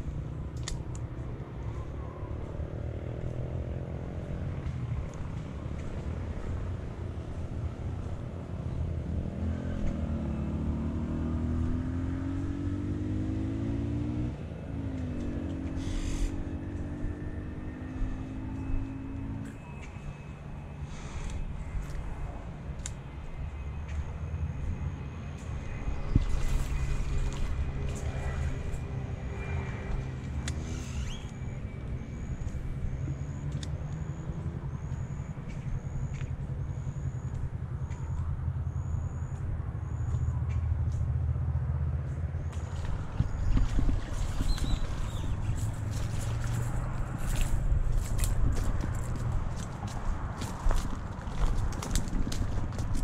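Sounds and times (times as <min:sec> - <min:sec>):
faint high-pitched chirp: 0:30.6 - 0:40.7.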